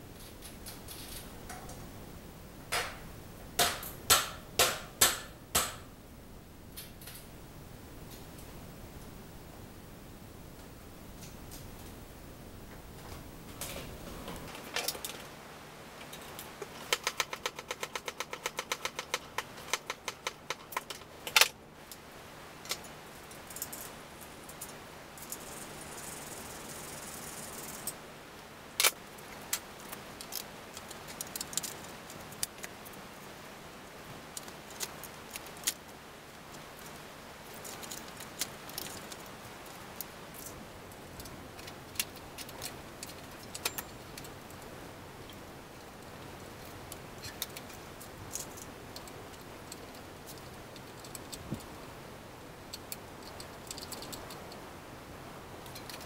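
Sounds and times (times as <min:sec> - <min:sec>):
small metal clicks: 0:00.2 - 0:01.9, 0:16.0 - 0:22.0, 0:22.6 - 0:25.7, 0:28.8 - 0:33.0, 0:34.3 - 0:51.8, 0:52.7 - 0:54.6, 0:55.6 - 0:56.0.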